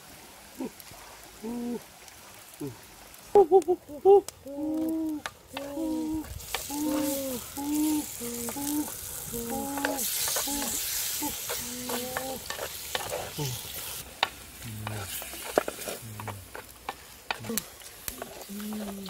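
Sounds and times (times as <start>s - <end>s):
gizzards sizzling in pot: 4.6s - 19.0s
wooden spatula scraping pot: 11.4s - 13.4s.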